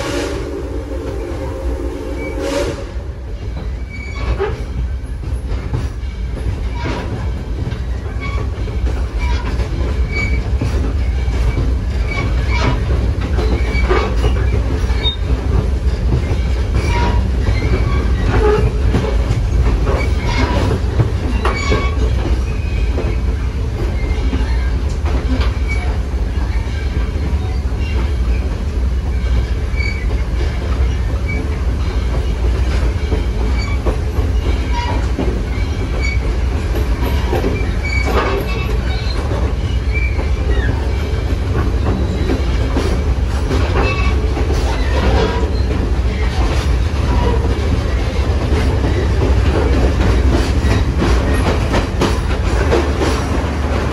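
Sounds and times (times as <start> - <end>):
train wheels rumbling on rail: 0.0 - 53.9
track clicks and knocks: 3.4 - 26.1, 29.3 - 53.9
wheel squeals: 9.2 - 11.3, 16.2 - 18.8, 19.9 - 23.4, 29.1 - 32.4, 37.0 - 42.9, 43.6 - 46.4.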